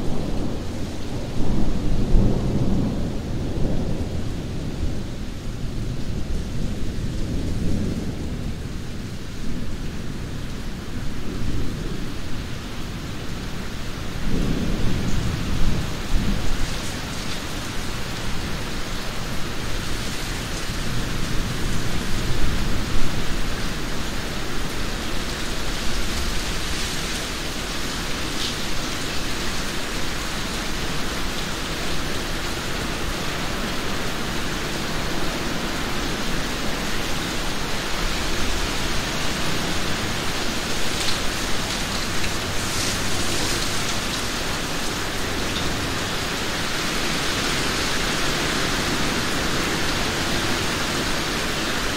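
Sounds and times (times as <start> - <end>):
rain falling: 0.0 - 51.9.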